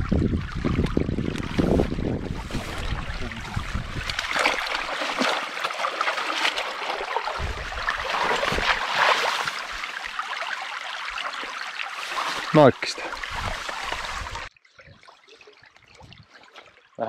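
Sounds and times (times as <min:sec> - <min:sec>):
wind rumble on microphone: 0:00.0 - 0:04.4, 0:07.4 - 0:08.7, 0:13.2 - 0:15.0
stream babbling over stones: 0:00.0 - 0:14.5.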